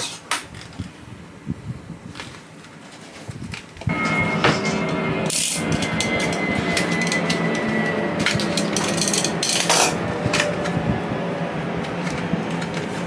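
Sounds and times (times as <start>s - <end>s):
steady low hum: 3.9s - 13.0s.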